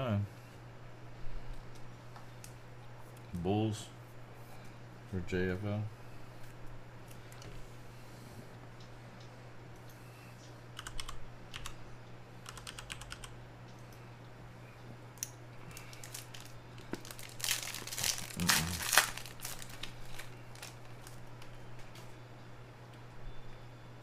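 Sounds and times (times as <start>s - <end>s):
foil pack tearing and crinkling: 15.7s - 21.3s.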